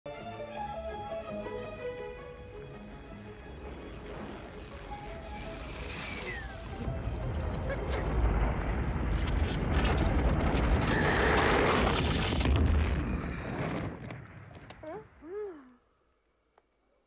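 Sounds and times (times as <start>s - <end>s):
grinding crashing rock: 5.6s - 14.8s
stones cracking and clattering: 5.7s - 14.8s.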